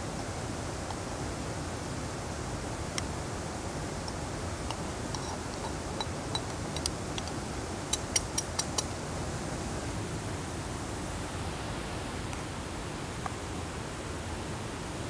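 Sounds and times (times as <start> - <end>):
steady hiss: 0.0 - 15.0
metal pot tapping on cup: 4.7 - 7.3.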